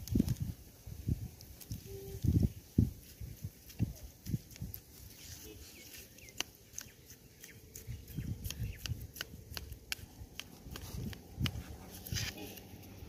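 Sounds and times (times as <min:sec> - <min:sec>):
knife mashing bait mix: 0:03.7 - 0:12.8.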